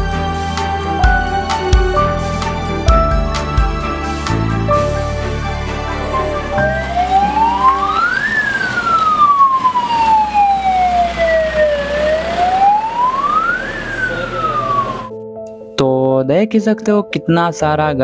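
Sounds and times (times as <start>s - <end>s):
siren wailing: 5.7s - 15.1s.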